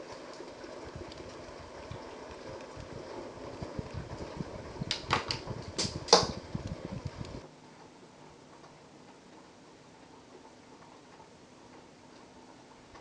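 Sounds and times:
thunder rumble: 0.0 - 7.4.

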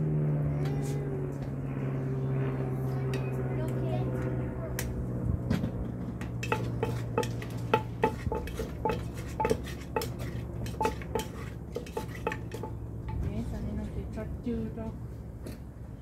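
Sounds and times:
wooden pestle pounding in mortar: 6.4 - 12.8.

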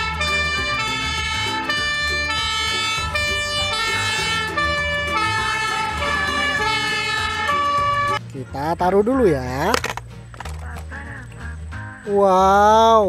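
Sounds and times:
two-tone fire engine siren: 0.0 - 8.2.

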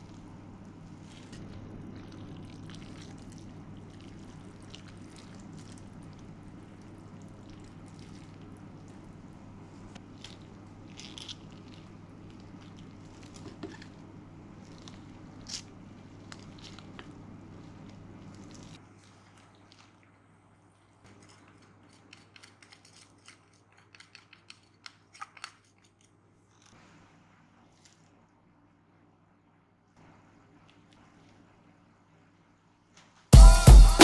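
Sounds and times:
noodles squishing in broth: 0.0 - 9.4, 10.0 - 25.6
steady low hum: 0.0 - 22.8.

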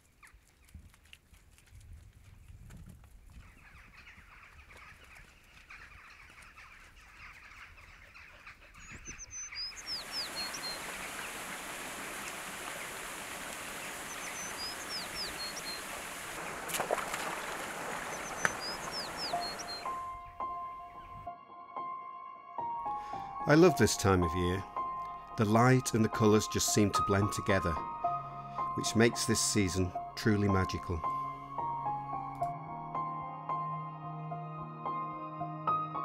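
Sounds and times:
songbird singing: 3.2 - 21.3
stream rushing over stones: 9.8 - 19.8.

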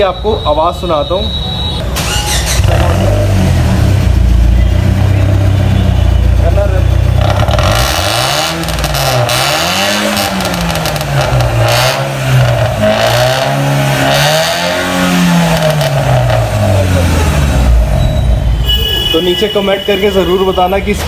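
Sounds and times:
car engine revving: 1.9 - 18.4.

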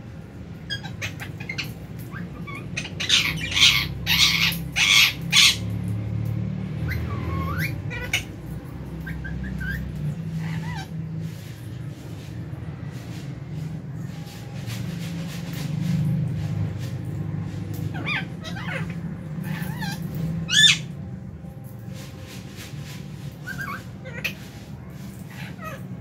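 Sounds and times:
birds squawking: 0.6 - 5.8, 6.8 - 11.7, 17.7 - 21.0, 23.3 - 26.0
birds chirping: 0.6 - 6.1, 6.7 - 12.4, 15.3 - 21.2, 23.3 - 26.0.

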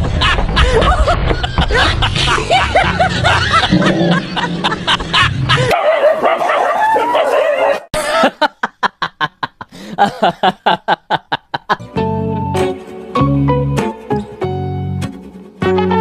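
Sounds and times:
dog yelping and barking: 5.7 - 7.9.

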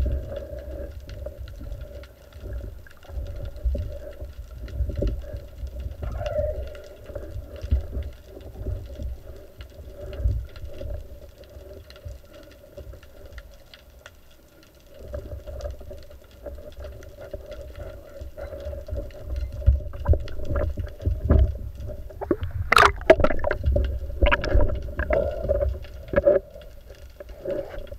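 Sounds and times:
underwater rumbling of moving water: 0.0 - 27.9
sharp clicks and knocks: 22.2 - 25.2.

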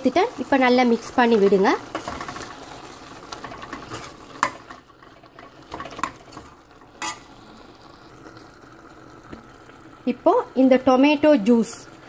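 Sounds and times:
spoon stirring and scraping pot: 1.4 - 7.4.

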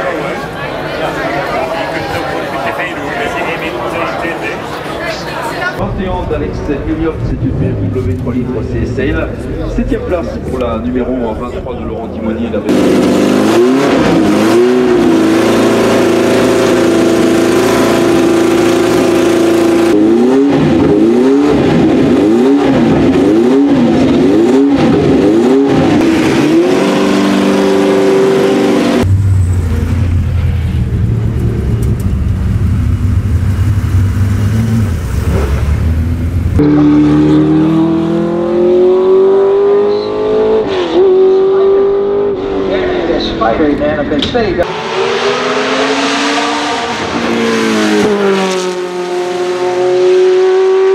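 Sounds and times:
race car engine accelerating: 12.6 - 50.9
racing engine idling and revving: 12.6 - 50.9
rough racing engine idling: 29.0 - 35.1.

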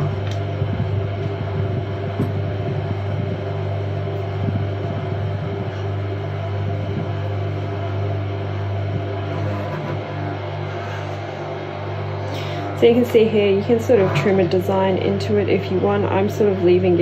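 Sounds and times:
pottery wheel motor humming: 0.0 - 17.0
metal tool scraping clay: 9.3 - 10.0.

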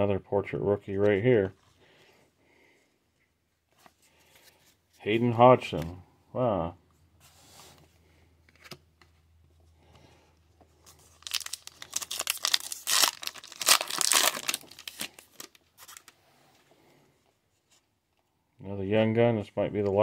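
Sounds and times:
crackling wrapper ripping: 10.9 - 16.1
wrapper being torn open: 10.9 - 16.1.

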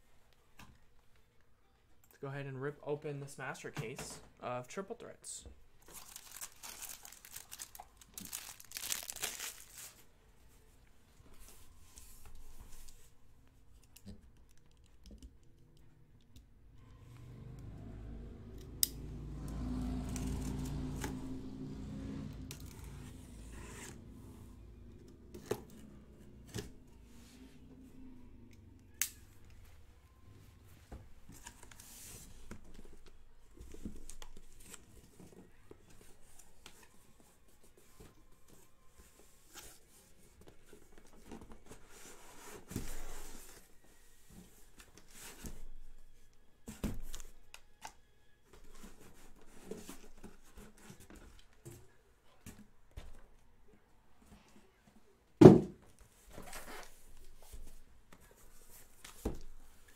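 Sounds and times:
tape tearing: 5.9 - 10.0.

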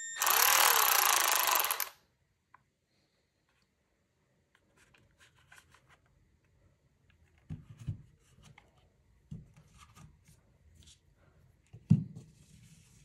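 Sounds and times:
soft knocks and taps of handling: 7.2 - 10.2.

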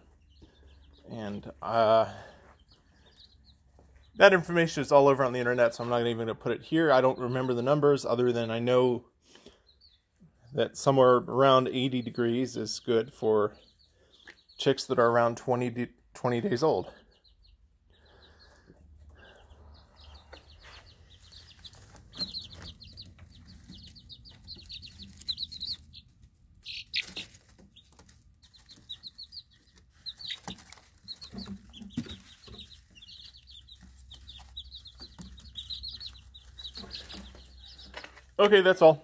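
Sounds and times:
chicks peeping: 0.0 - 39.0.

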